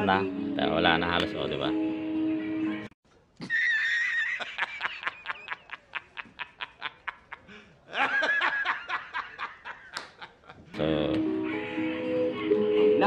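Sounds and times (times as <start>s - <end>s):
man wheezing laugh: 3.4s - 10.6s.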